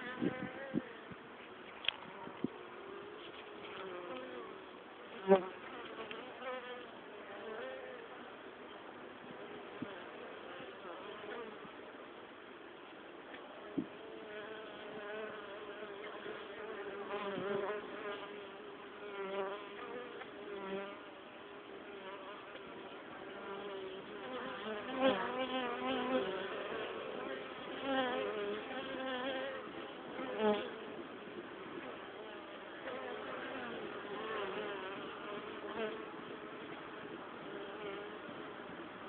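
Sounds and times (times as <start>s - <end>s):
bees flying past: 13.6s - 39.0s
honeybees buzzing: 13.8s - 39.0s.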